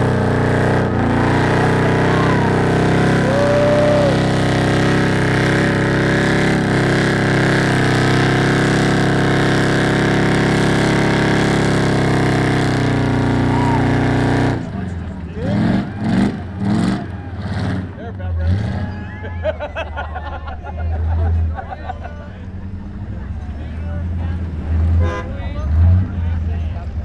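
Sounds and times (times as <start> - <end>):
engine at high revs: 0.0 - 19.0.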